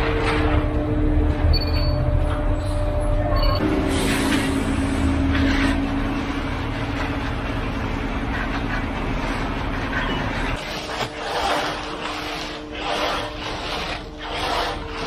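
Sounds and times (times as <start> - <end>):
hand tools scraping wet concrete: 4.0 - 15.0.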